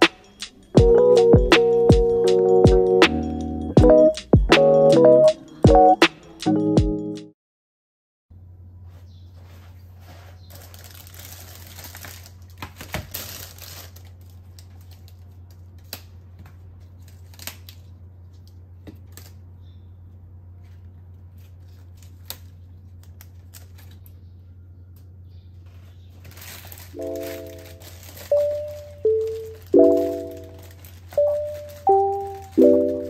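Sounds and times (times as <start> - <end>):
lettuce leaves crinkling: 9.4 - 19.5, 20.6 - 24.3, 25.6 - 33.0
lettuce leaves snapping: 10.5 - 19.4, 21.4 - 24.2, 26.2 - 33.0.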